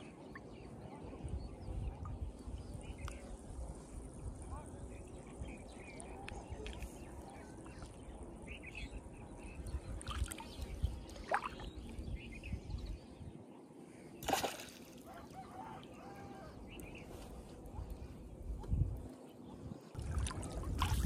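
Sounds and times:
water lapping and splashing: 0:10.0 - 0:11.8, 0:14.2 - 0:15.8, 0:19.9 - 0:21.0
sharp splash: 0:14.2 - 0:15.1.

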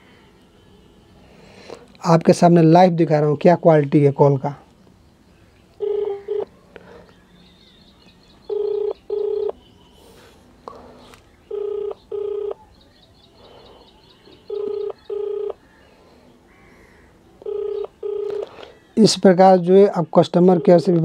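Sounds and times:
phone ringback tone: 0:05.8 - 0:06.5, 0:08.5 - 0:09.6, 0:11.5 - 0:12.6, 0:14.4 - 0:15.6, 0:17.4 - 0:18.8, 0:20.4 - 0:21.0.

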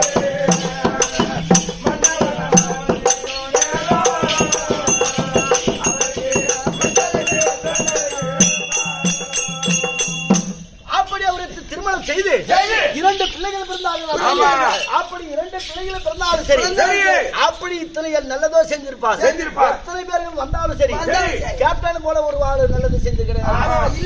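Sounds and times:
wavering melody line: 0:00.0 - 0:10.8
quick steady percussion: 0:00.0 - 0:17.9
jingling ankle bells: 0:00.0 - 0:18.8.

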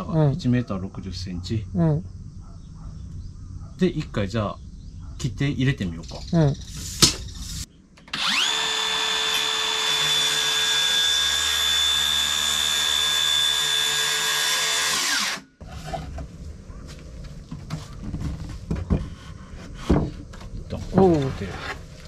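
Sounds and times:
circular saw cutting wood: 0:06.8 - 0:15.6.

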